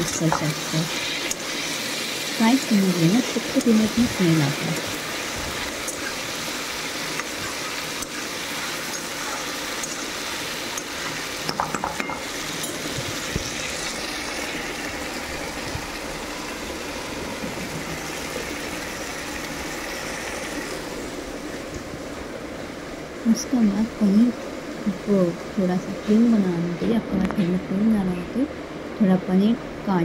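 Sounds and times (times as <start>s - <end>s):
food sizzling in oil: 0.0s - 21.7s.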